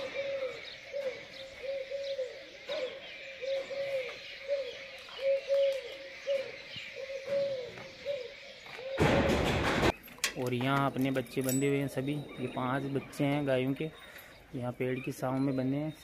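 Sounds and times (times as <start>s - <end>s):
small birds chirping: 0.0s - 9.0s, 9.9s - 16.0s
doves cooing: 0.0s - 9.9s, 10.8s - 16.0s.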